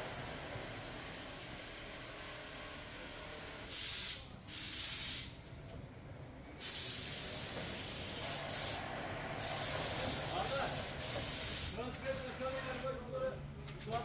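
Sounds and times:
low factory hum: 0.0s - 14.0s
loud hissing bursts: 3.7s - 5.4s, 6.6s - 11.8s.

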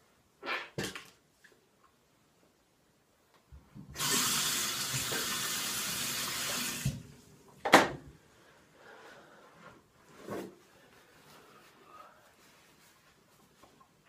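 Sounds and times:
sink tap running: 3.9s - 7.1s.

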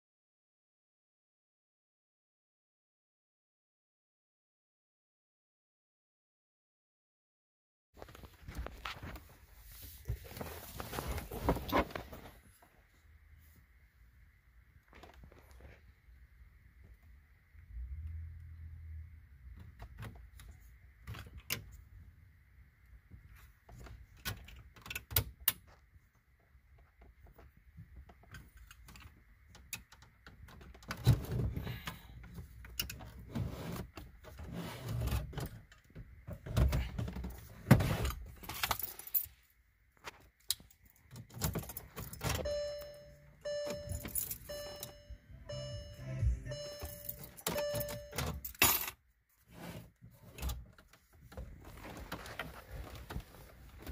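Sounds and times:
short electronic beep: 42.4s - 48.4s.

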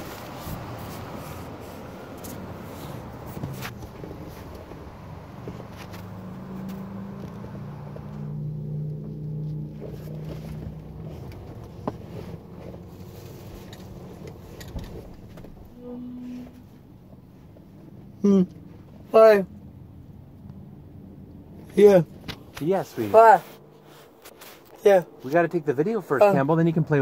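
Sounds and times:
water spraying on car: 0.0s - 8.0s
low machine hum: 15.1s - 18.7s.

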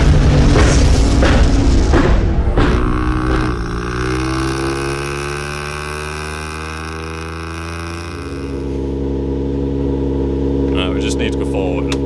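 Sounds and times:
mechanical engine drone: 0.0s - 12.0s.

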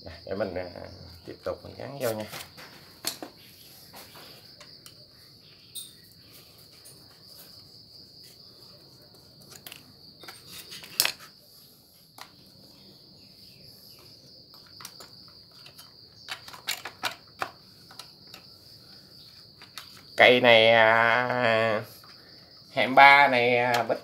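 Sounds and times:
cricket trill: 0.0s - 24.0s
plastic clicks and knocks: 3.0s - 3.4s, 14.6s - 18.4s.

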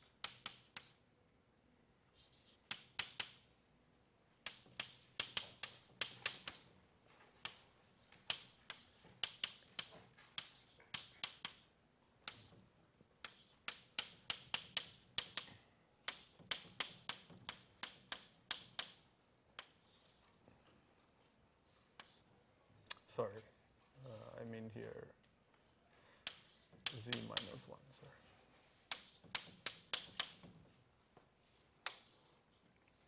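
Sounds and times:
chalk tapping on blackboard: 0.0s - 1.0s, 2.2s - 3.5s, 4.4s - 12.6s, 13.2s - 19.0s, 19.6s - 20.2s, 22.0s - 22.3s, 23.0s - 24.4s, 26.2s - 30.8s, 31.8s - 32.6s.

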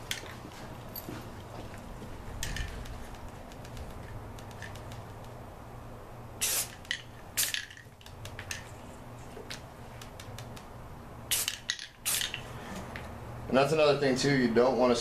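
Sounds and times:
spray paint can hissing: 6.4s - 8.6s, 11.3s - 12.5s.

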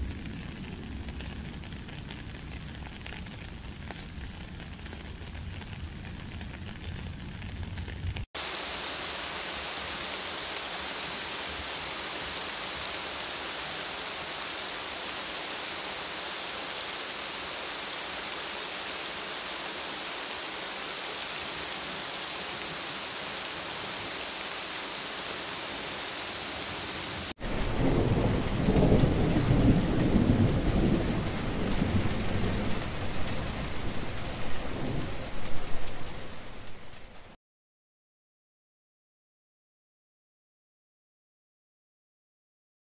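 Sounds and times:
rain on wet pavement: 0.0s - 37.4s
rumbling thunder: 27.4s - 37.1s.

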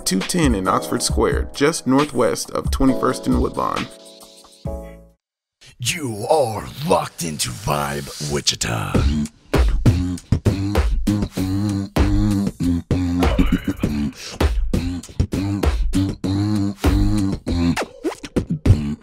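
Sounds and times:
beatboxing: 7.6s - 19.0s.

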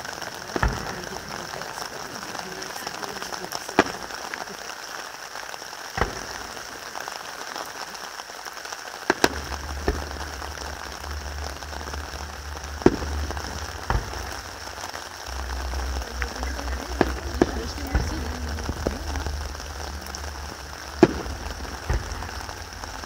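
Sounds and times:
fireworks crackling: 0.0s - 23.0s
low rumble: 9.3s - 23.0s.

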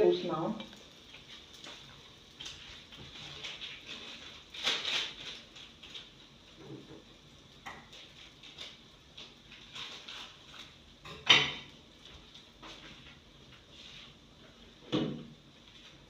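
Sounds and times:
metal cookware clatter: 11.0s - 11.7s.

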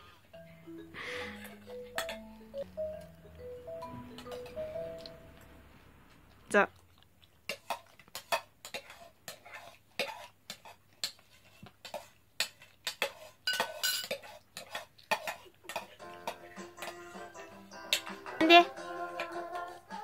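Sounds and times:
metal spoons clinking on ceramic bowls: 1.2s - 2.5s, 4.1s - 5.1s, 12.8s - 17.0s.

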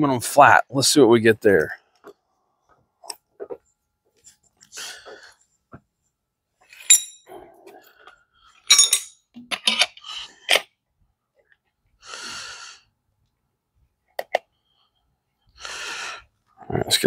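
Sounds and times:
metal tools clinking: 6.7s - 7.3s, 8.6s - 10.6s.

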